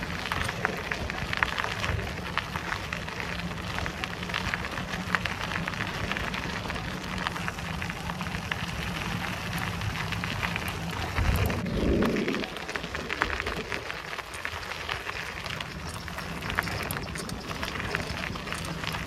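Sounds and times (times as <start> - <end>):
bicycle tyres crunching on a track: 0.0 - 19.0.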